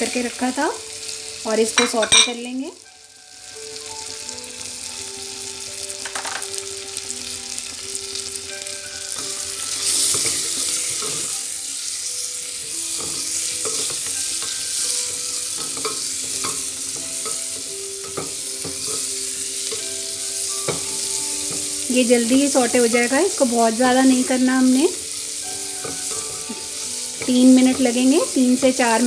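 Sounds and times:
onions sizzling in butter: 0.0s - 29.0s
spatula scraping and tapping pan: 9.2s - 11.4s, 12.6s - 20.0s, 20.6s - 21.8s, 25.7s - 28.7s.

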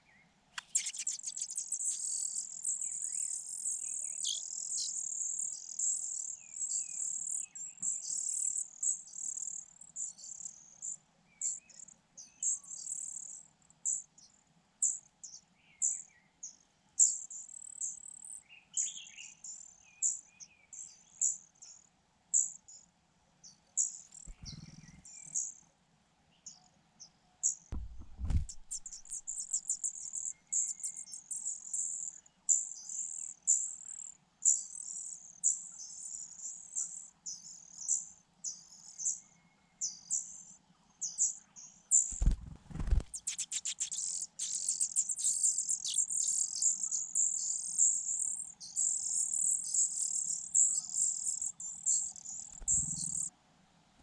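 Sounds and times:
nestlings begging calls: 0.6s - 3.2s, 4.1s - 5.2s, 24.3s - 25.1s, 28.5s - 30.3s, 43.1s - 47.6s, 48.2s - 53.3s
soft thumps with rustle: 27.7s - 29.3s, 42.1s - 43.1s, 52.6s - 53.2s.

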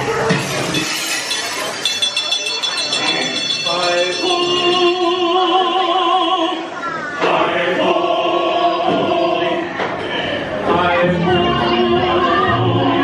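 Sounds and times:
choir singing held notes: 3.6s - 13.0s.

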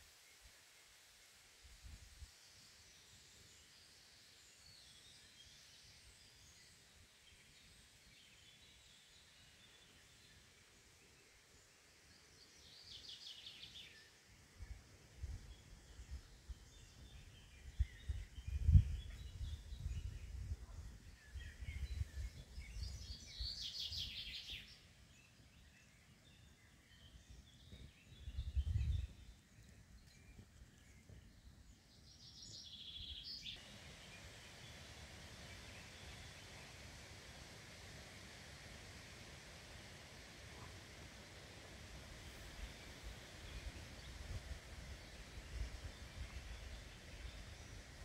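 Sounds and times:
faint hiss: 0.0s - 48.0s
low rumbles on microphone: 17.6s - 23.0s, 27.7s - 29.4s.

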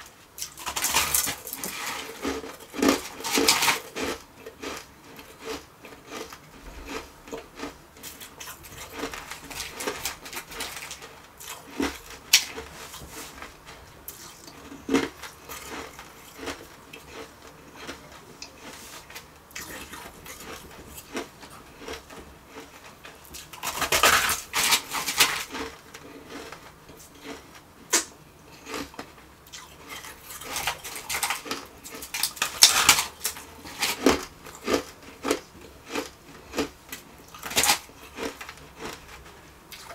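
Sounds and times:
shaved ice crunching in steel bowl: 0.4s - 28.0s, 28.6s - 39.9s.

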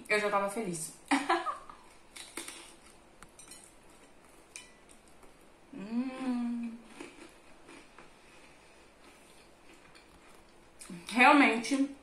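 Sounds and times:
woman humming mmm: 5.7s - 6.9s
soft chewing clicks: 6.8s - 11.1s.

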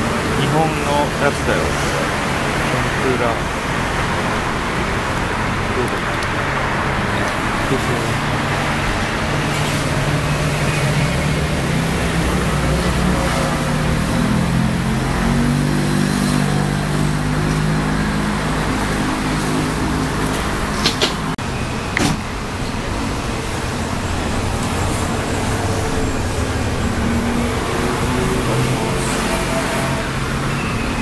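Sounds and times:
road traffic noise: 0.0s - 31.0s
vehicle engine humming: 0.0s - 31.0s.

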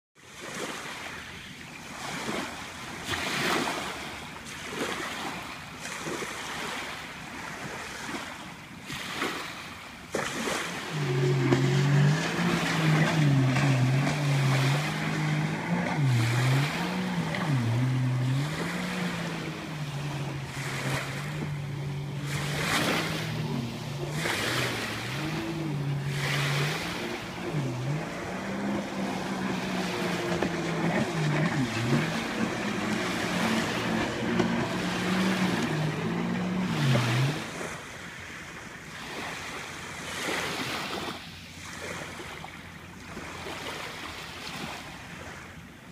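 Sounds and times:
small waves washing on shore: 0.2s - 45.9s
jet ski engine droning: 1.0s - 40.8s.

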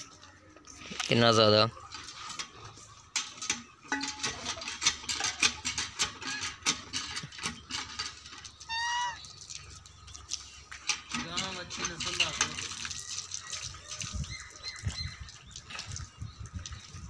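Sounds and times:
cow licking wet clicks: 8.4s - 10.9s, 12.2s - 16.9s
short high-pitched call: 8.7s - 9.2s.

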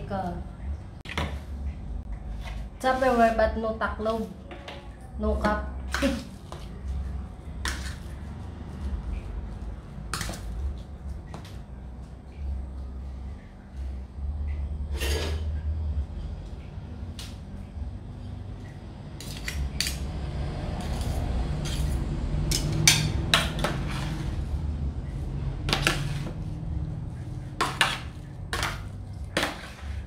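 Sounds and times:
metal spatula scraping steel tray: 14.9s - 15.5s, 19.2s - 20.0s, 20.8s - 24.5s, 25.7s - 26.4s.

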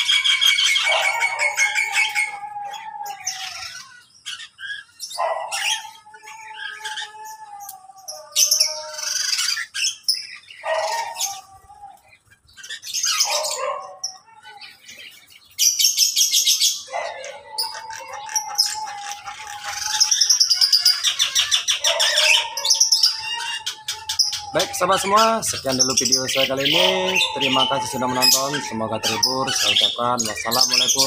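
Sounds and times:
birds chirping and calling: 0.0s - 31.0s
rapid high bird trilling: 15.5s - 31.0s.

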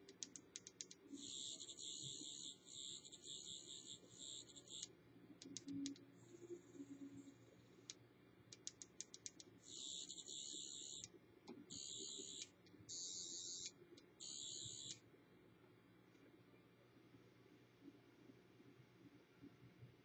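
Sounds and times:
quick clicks: 0.1s - 1.1s, 7.9s - 9.5s.

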